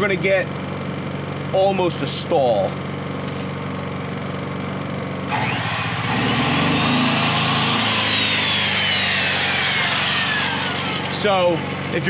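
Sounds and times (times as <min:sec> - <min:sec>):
generator engine running: 0:00.0 - 0:12.0
circular saw whining: 0:05.3 - 0:12.0.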